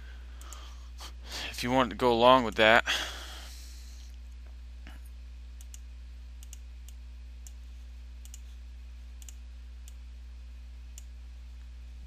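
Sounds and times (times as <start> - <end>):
steady low hum: 0.0 - 12.0
computer mouse clicking: 5.6 - 5.8, 6.4 - 6.6, 8.2 - 8.5, 9.2 - 10.0.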